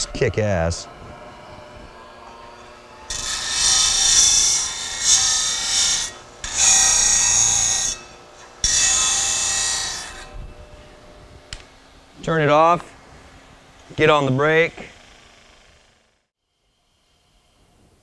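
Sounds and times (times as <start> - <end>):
metal bar rasping on grinder: 0.0 - 11.6
grinder running hum: 0.0 - 16.3.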